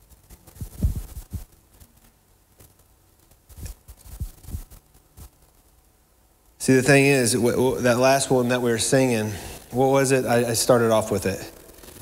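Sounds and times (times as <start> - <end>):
soft low thumps: 0.6 - 1.5.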